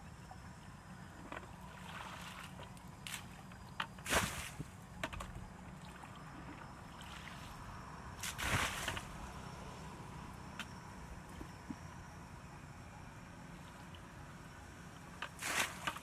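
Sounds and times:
water splashing onto grass: 4.1s - 4.6s, 8.2s - 9.0s.

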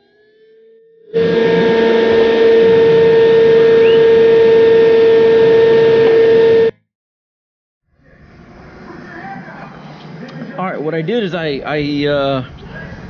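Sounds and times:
router whining cutting wood: 1.1s - 6.7s.

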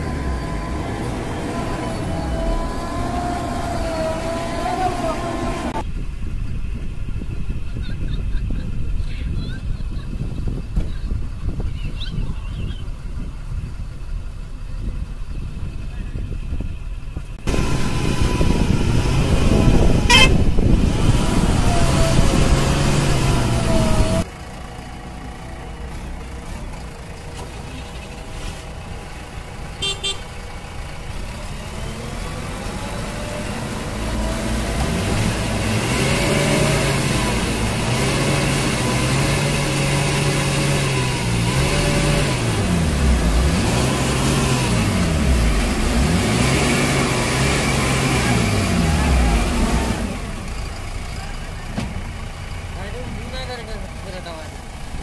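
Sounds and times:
diesel engine revving: 0.0s - 8.4s, 10.2s - 55.0s
horn toot: 20.0s - 20.5s, 29.8s - 30.3s.

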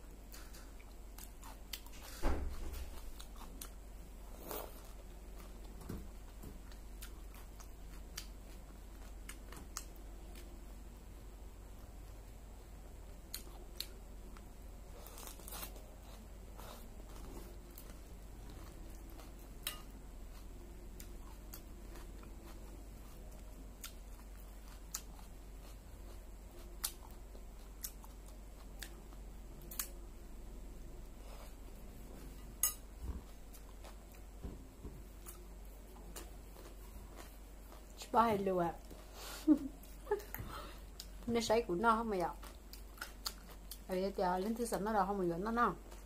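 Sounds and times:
crunching and chewing vegetables: 0.0s - 11.1s, 11.7s - 30.0s, 31.0s - 39.2s, 39.8s - 46.0s
faint low hum: 0.0s - 46.0s.

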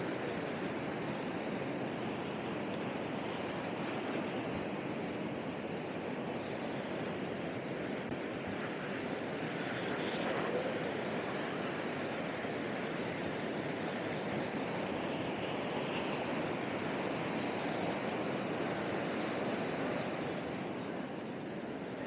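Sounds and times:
ocean surf breaking: 6.0s - 21.8s.

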